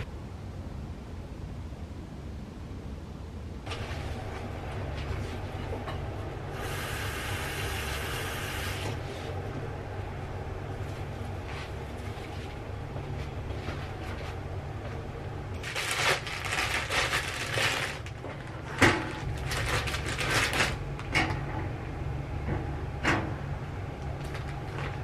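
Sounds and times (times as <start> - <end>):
steady low hum: 0.0 - 25.0
plastic bag crinkling: 15.6 - 21.1.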